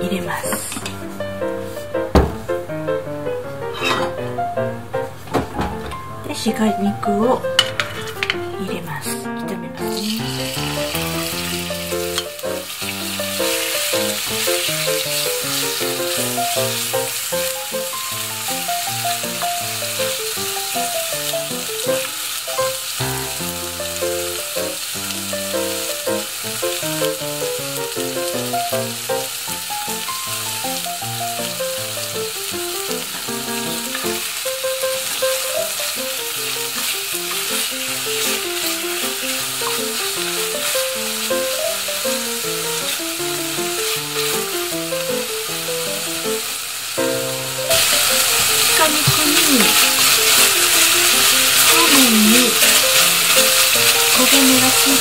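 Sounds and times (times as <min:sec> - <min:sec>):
meat sizzling in a pot: 0:00.0 - 0:05.3, 0:05.9 - 0:55.0
background music melody: 0:00.0 - 0:55.0
wooden spatula stirring: 0:47.8 - 0:55.0.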